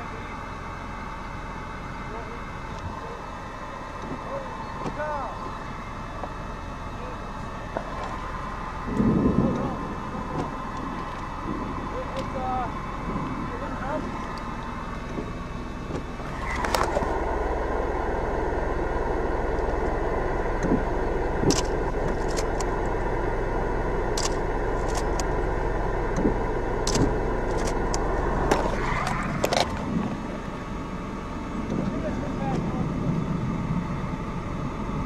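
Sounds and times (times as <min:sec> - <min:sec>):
vehicle rushing noise: 0:07.8 - 0:22.2, 0:26.2 - 0:32.2
sharp knocks and clicks: 0:26.2 - 0:29.8.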